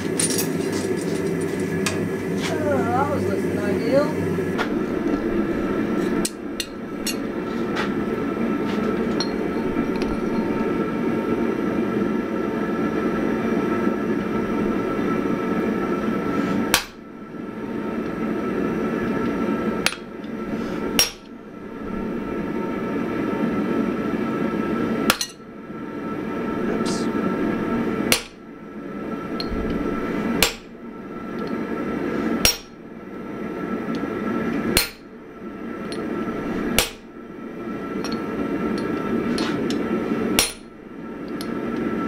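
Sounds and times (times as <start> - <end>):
steady low noise: 1.0 - 24.8, 25.6 - 32.0.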